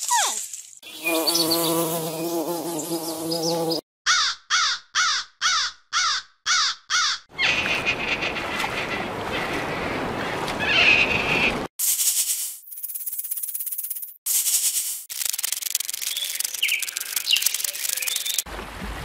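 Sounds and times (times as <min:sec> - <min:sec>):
crow cawing: 0:04.1 - 0:09.8.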